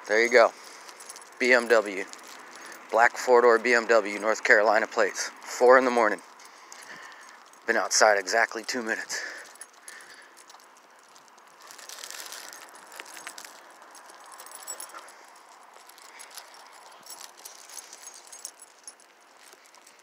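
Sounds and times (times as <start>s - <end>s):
faint rattling and clicks: 6.3s - 20.0s.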